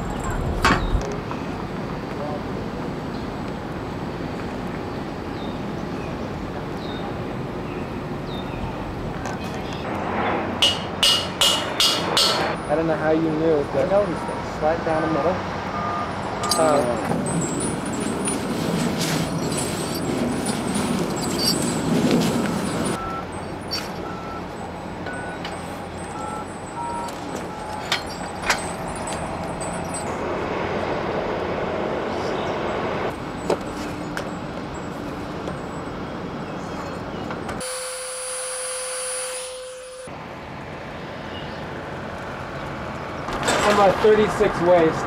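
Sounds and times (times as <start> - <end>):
outdoor background noise: 0.0 - 45.0
steady tone: 37.6 - 40.2.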